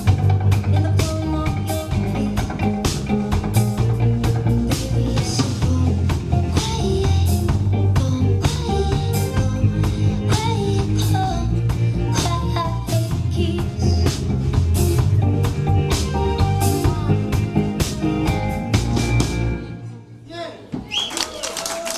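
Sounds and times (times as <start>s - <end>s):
drum kit: 0.0s - 19.7s
electric bass: 0.0s - 20.0s
electric guitar: 0.0s - 20.0s
woman singing: 0.5s - 3.0s, 4.7s - 14.3s.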